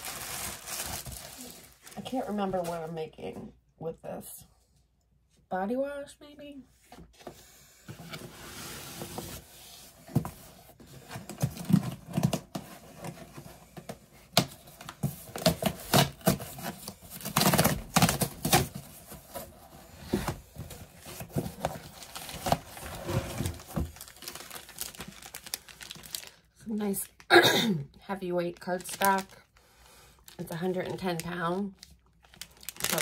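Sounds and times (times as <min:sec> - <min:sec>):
packaging tearing and crinkling: 0:00.0 - 0:02.0, 0:21.0 - 0:26.4, 0:28.6 - 0:29.4, 0:30.3 - 0:33.0.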